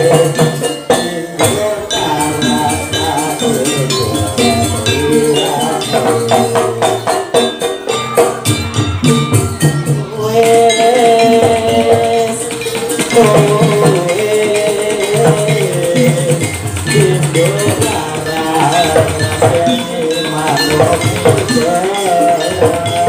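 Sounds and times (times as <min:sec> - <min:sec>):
percussion rhythm: 0:00.0 - 0:23.0
wavering held melody: 0:00.0 - 0:23.0.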